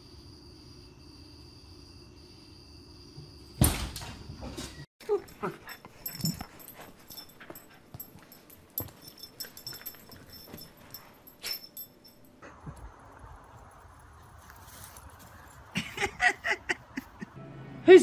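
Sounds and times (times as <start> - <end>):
dogs whimpering and yipping: 5.0 - 11.9.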